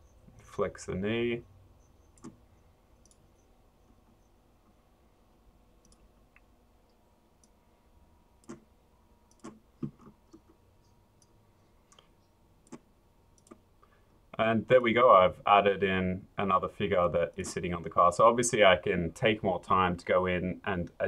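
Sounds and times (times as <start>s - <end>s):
computer mouse clicks: 1.8s - 4.8s, 5.8s - 7.6s, 8.4s - 8.7s, 9.3s - 13.6s.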